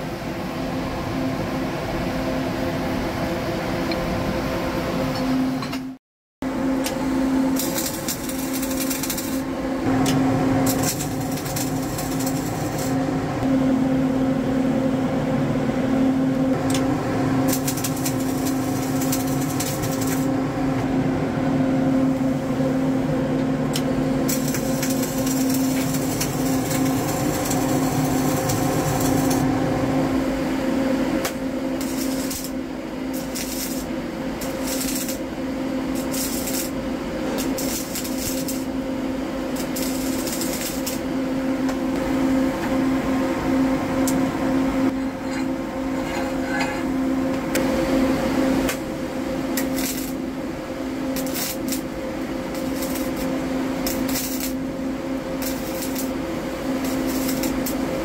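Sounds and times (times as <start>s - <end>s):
welding machine humming: 6.4s - 58.0s
crackling welding arc: 7.5s - 13.0s, 16.6s - 20.4s, 23.7s - 29.5s, 31.2s - 38.8s, 39.4s - 41.1s, 49.5s - 50.3s, 51.0s - 58.0s.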